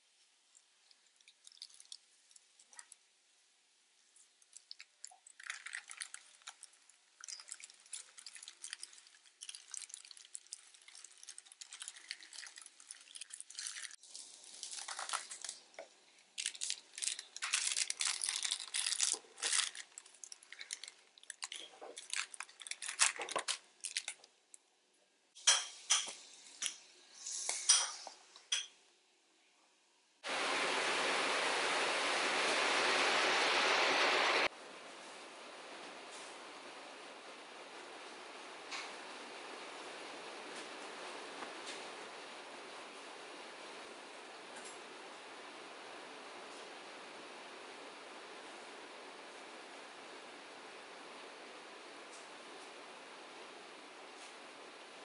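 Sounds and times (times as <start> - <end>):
paper rustling and crinkling: 8.2 - 15.8, 16.4 - 24.2.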